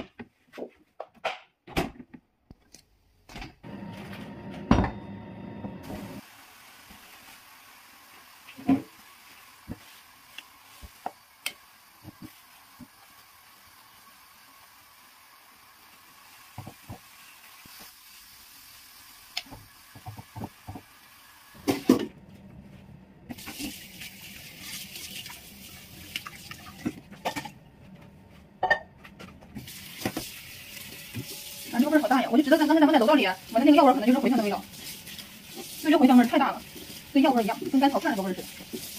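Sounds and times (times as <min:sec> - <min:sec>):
boiling water hiss: 0:05.8 - 0:22.0, 0:23.3 - 0:27.0, 0:29.6 - 0:38.9
tap water running into sink: 0:23.3 - 0:27.1, 0:29.6 - 0:32.0.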